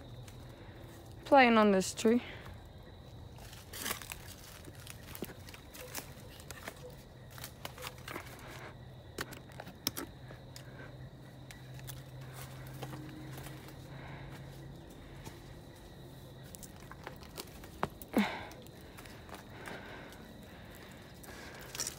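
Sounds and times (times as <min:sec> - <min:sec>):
twigs crackling underfoot: 0:00.0 - 0:21.9.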